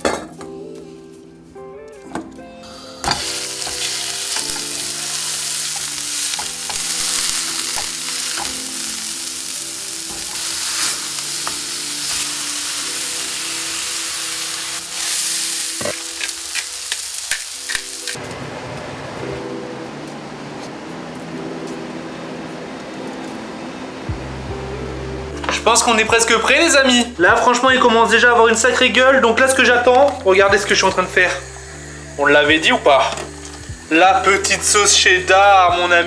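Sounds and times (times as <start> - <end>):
meat patties sizzling in a pan: 2.9 - 18.2.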